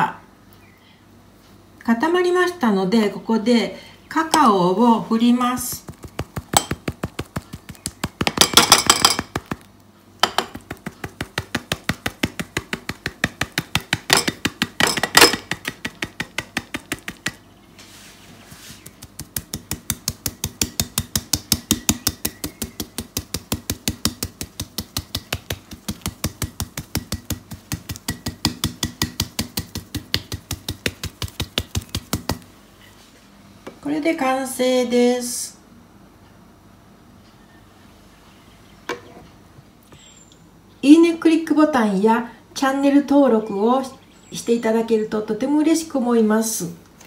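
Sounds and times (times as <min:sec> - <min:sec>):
metal sieve tapping: 0:06.0 - 0:09.6, 0:19.0 - 0:32.4.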